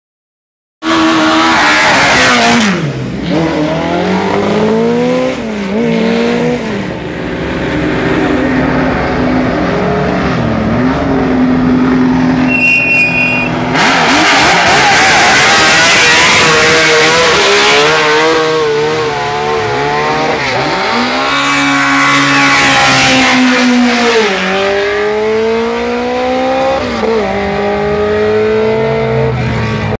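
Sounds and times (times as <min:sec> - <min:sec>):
racing car engines revving: 0:00.8 - 0:30.0.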